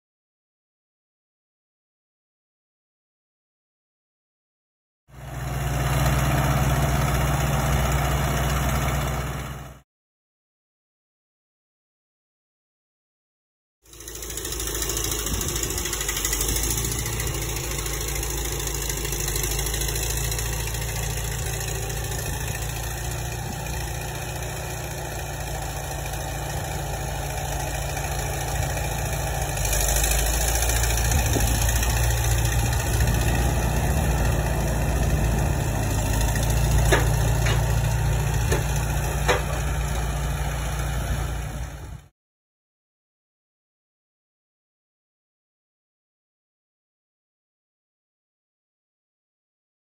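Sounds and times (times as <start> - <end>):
tractor engine running: 5.1 - 9.8, 13.9 - 42.1.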